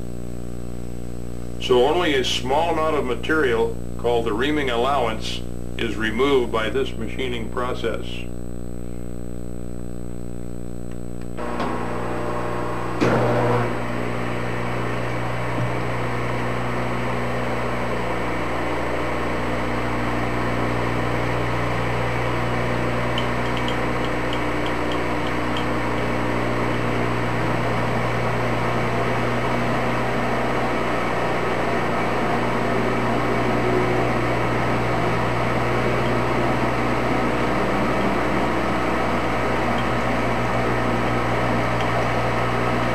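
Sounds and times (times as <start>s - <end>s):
lathe whirring: 11.3s - 42.9s.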